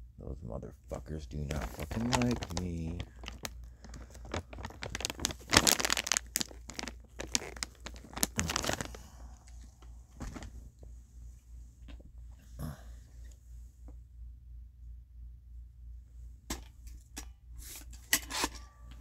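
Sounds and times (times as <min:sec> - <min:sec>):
low steady hum: 0:00.0 - 0:19.0
rustling crinkling: 0:00.9 - 0:10.9.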